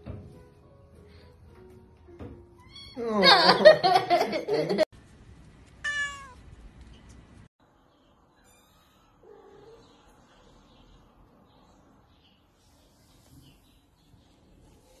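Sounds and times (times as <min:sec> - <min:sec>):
cat meowing: 0:05.8 - 0:06.4.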